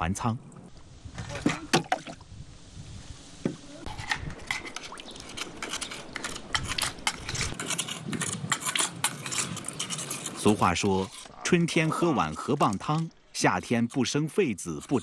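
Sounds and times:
cleaver scraping mussel shell: 3.8 - 15.0.

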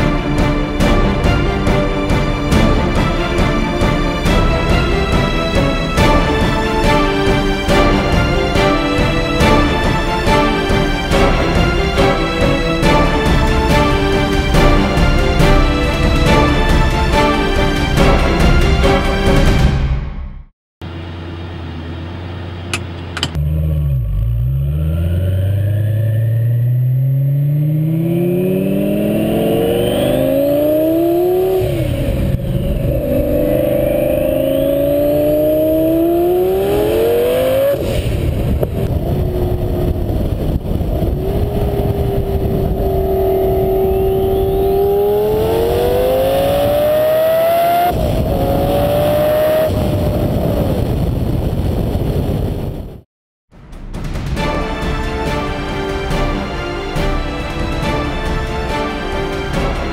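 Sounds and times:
sports car engine revving through gears: 21.6 - 38.1, 38.8 - 50.4.

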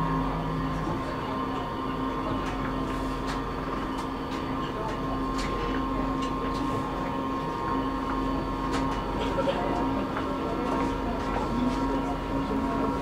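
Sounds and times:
train hum and rumble: 0.0 - 13.0.

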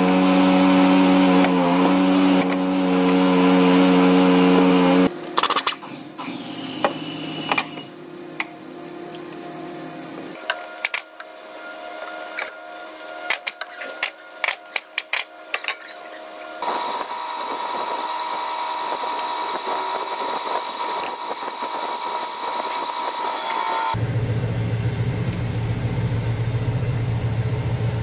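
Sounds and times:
machine whirring: 10.0 - 24.2.

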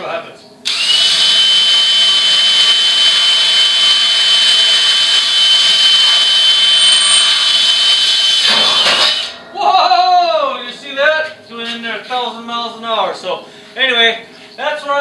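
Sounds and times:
cordless drill boring into steel: 0.7 - 9.3.

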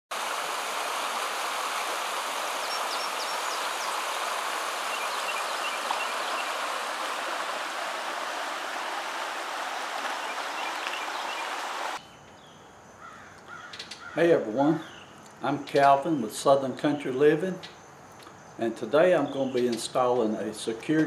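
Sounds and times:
creek rippling over rocks: 0.1 - 12.0.

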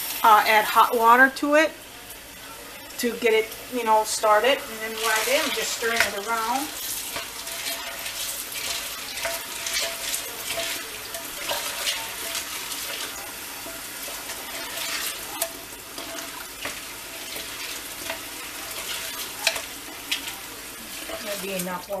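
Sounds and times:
water pouring into a pot: 4.9 - 22.0
spoon knocking and scraping a pot: 5.1 - 6.5, 7.1 - 21.4.

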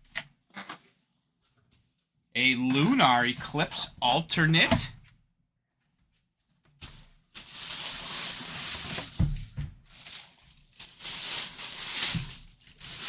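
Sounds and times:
plastic bag crinkling: 6.8 - 13.0.

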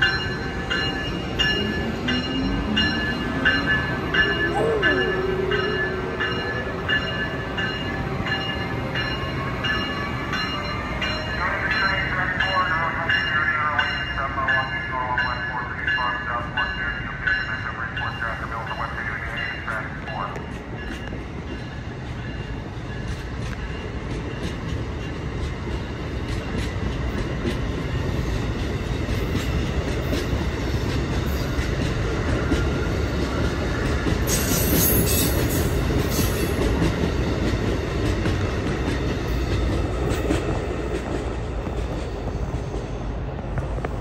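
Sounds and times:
train rumble: 0.0 - 44.0
train wheels clicking over joints: 20.0 - 44.0.

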